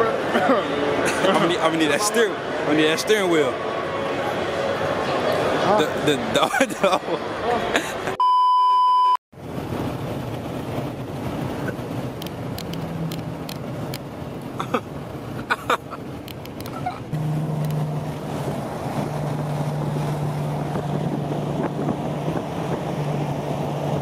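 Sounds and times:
road and wind noise in car: 0.0s - 8.2s, 9.4s - 24.0s
low engine drone: 10.4s - 24.0s.

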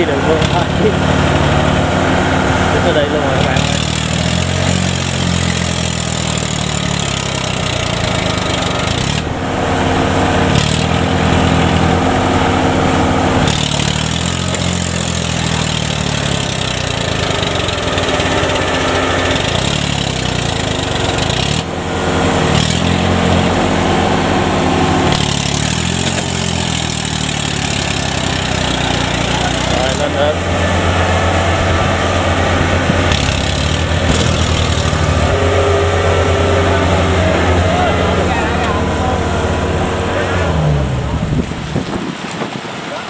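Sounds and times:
diesel engine revving under load: 0.0s - 43.0s.

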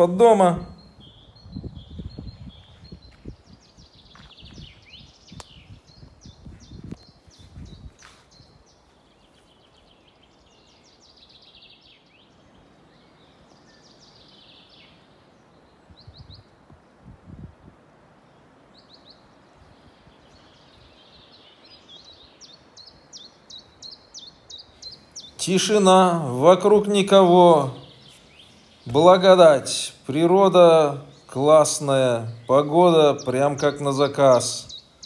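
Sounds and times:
faint outdoor hiss: 0.0s - 35.0s
songbirds chirping and trilling: 0.0s - 35.0s.

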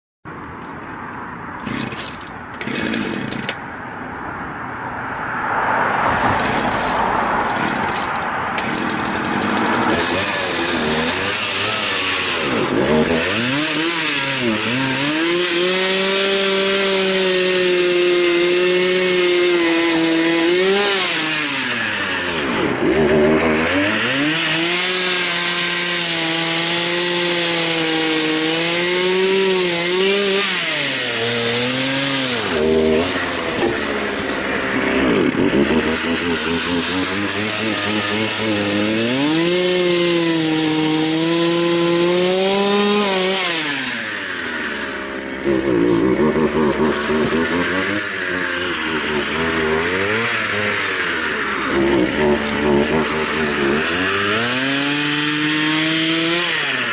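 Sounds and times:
two-stroke chainsaw engine running: 1.6s - 3.6s, 6.4s - 56.9s.

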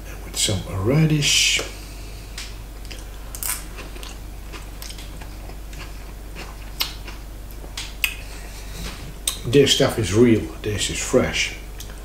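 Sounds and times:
person chewing: 2.3s - 9.5s
wet mouth clicks: 6.7s - 8.2s.

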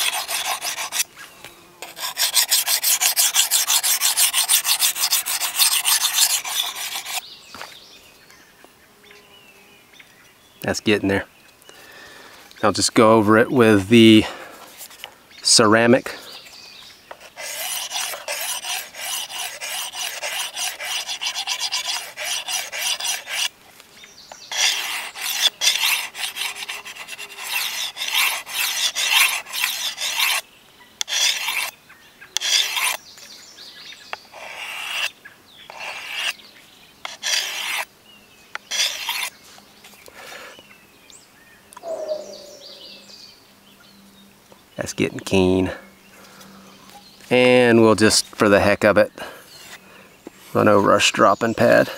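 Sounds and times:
blade scraping on sharpener: 0.0s - 1.1s, 1.8s - 7.2s, 17.1s - 23.5s, 24.3s - 30.4s, 31.0s - 31.8s, 32.4s - 33.0s, 34.1s - 35.1s, 35.7s - 36.4s, 37.0s - 37.9s, 38.5s - 39.4s.

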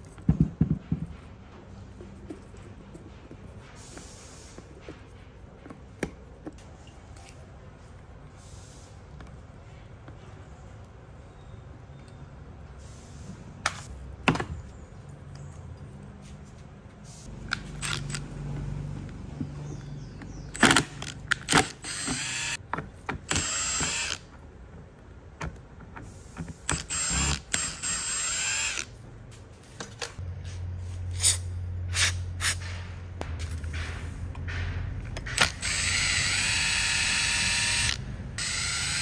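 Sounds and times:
screws clicking and squeaking: 20.2s - 22.6s, 26.6s - 28.9s, 35.2s - 39.0s.

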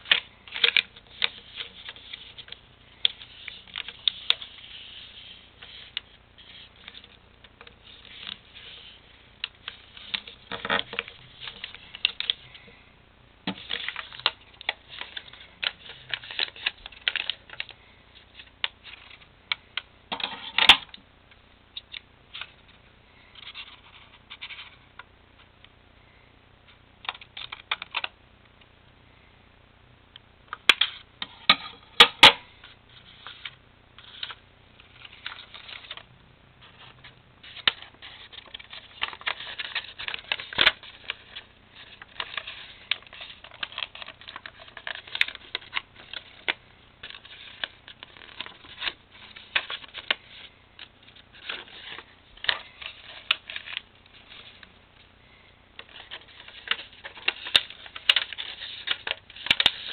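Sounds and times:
paper rustling and crinkling: 13.5s - 19.3s, 32.9s - 54.7s, 55.3s - 59.9s.

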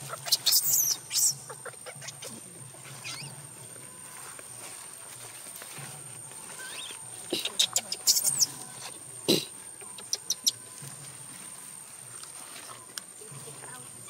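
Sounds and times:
baby monkey squealing: 0.0s - 2.4s, 3.0s - 3.3s, 6.6s - 8.6s, 9.8s - 10.6s.

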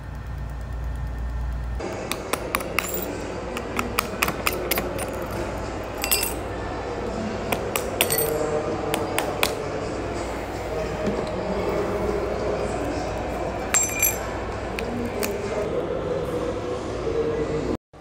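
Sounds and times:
low steady hum: 0.0s - 15.9s
glassy clinks: 2.6s - 3.2s, 4.4s - 6.5s, 7.8s - 8.5s, 13.8s - 14.4s.

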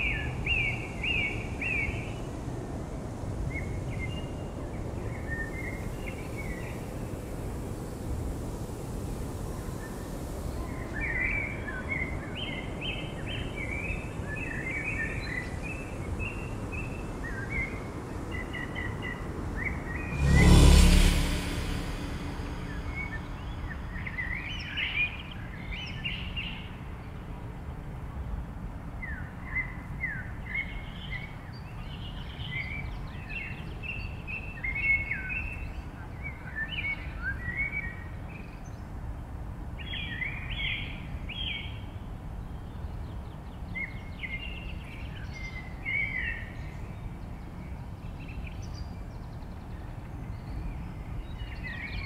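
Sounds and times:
steady low rumble: 19.7s - 24.3s.

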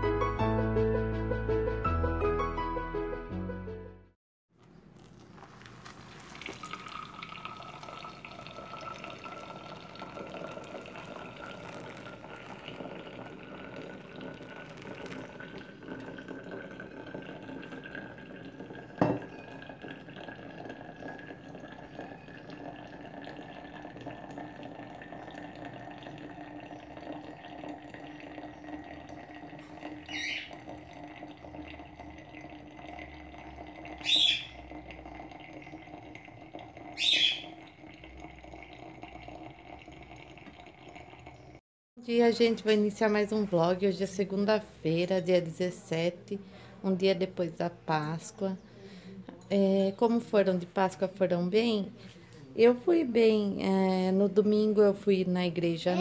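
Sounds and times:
hot water pouring over coffee: 4.9s - 41.6s.

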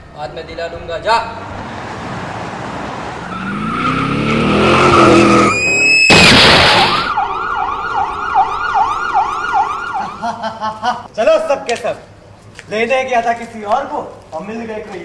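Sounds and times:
tyres screeching: 2.3s - 7.1s
emergency siren wailing: 3.1s - 10.4s
motorcycle engine revving: 3.3s - 5.6s
loud crash: 4.9s - 7.2s.

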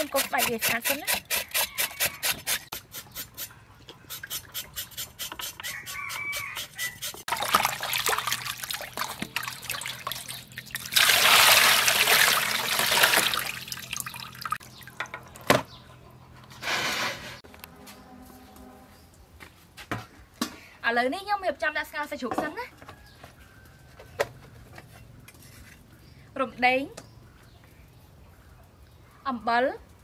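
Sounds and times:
hands scrubbing meat in water: 7.2s - 14.6s.

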